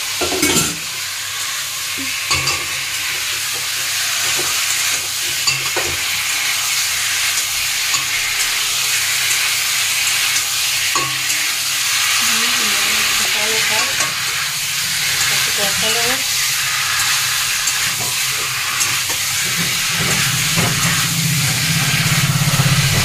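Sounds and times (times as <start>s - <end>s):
potatoes sizzling in oil: 0.0s - 23.0s
metal spatula scraping pan: 10.9s - 23.0s.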